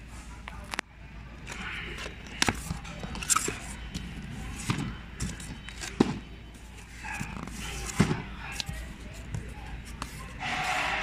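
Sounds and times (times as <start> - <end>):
cardboard rustling: 1.5 - 10.8.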